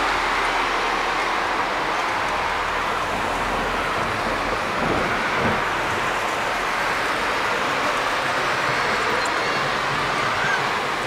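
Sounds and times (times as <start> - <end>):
low thunder rumble: 3.2 - 7.3.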